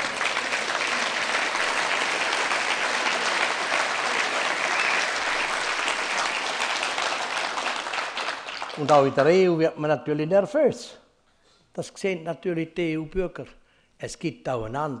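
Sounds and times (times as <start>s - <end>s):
audience applauding: 0.0s - 9.4s.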